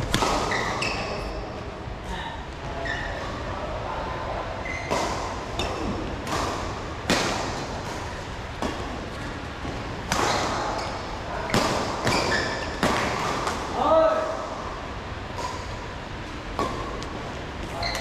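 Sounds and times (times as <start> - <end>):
rackets hitting shuttlecock: 0.0 - 0.8, 4.8 - 9.0, 9.6 - 13.8.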